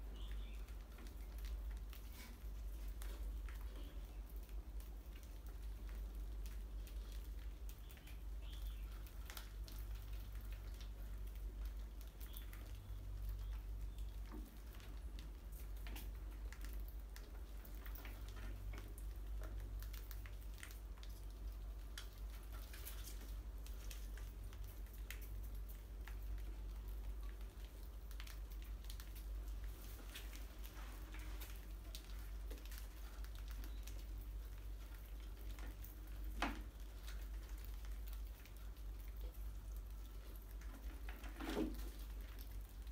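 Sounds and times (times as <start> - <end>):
claws pattering on tiled floor: 0.3 - 42.9.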